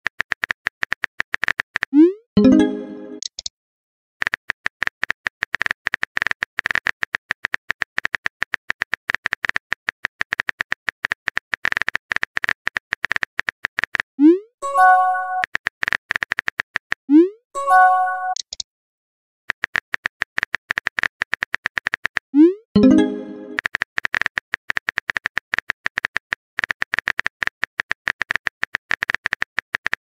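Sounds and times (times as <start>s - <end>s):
keyboard typing clicks: 2.4s - 3.5s, 18.2s - 18.6s, 22.8s - 30.0s.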